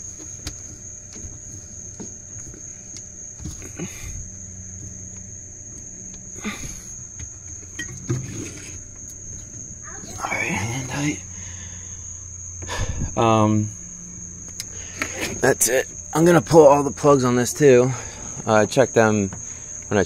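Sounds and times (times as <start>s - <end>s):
cricket trill: 0.0s - 20.0s
fuel filter threaded on by hand: 7.2s - 9.6s.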